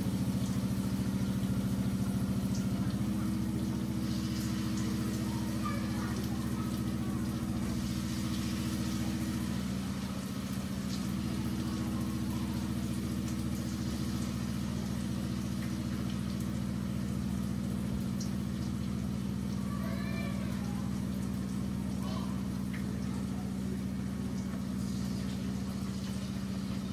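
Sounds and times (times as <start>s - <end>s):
food frying in oil: 0.0s - 26.9s
low droning motor hum: 0.0s - 26.9s.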